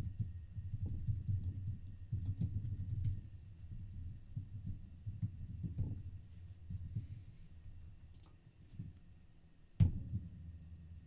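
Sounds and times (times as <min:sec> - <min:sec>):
computer keyboard typing: 0:00.0 - 0:06.1.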